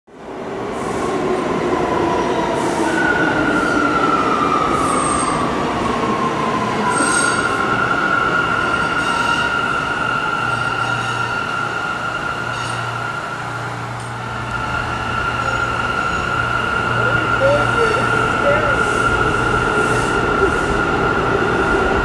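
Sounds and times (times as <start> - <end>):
train rumble: 0.2 - 22.0
train wheels squealing on rails: 2.5 - 22.0.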